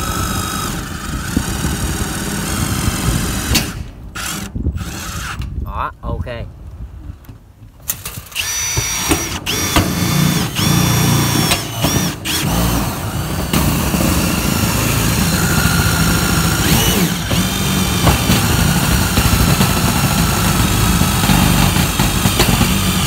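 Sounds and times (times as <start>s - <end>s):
impact driver driving screws into metal: 7.9s - 23.0s.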